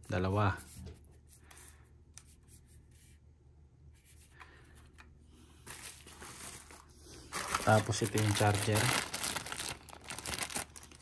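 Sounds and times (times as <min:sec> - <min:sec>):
packaging rustling: 0:05.6 - 0:11.0.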